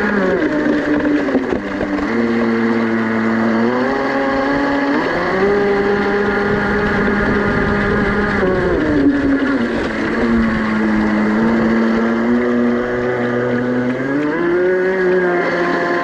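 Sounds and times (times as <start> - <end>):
model boat motor running: 0.0 - 16.0.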